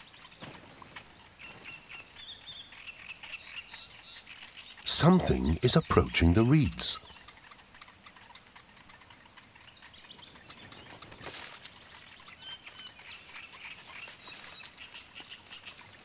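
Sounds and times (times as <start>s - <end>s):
small bird chirps: 0.0s - 16.0s
dry reeds rustling: 11.2s - 16.0s.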